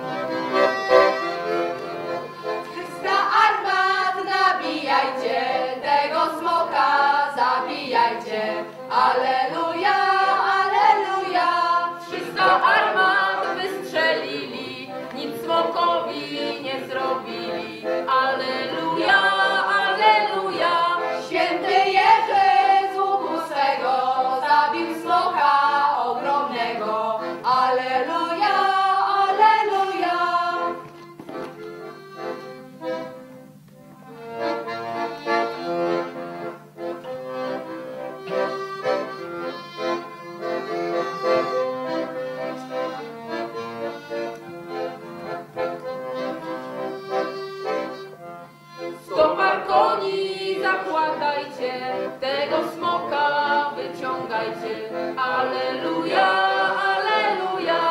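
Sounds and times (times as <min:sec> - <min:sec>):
group singing a carol: 0:02.7 - 0:30.9, 0:49.0 - 0:57.9.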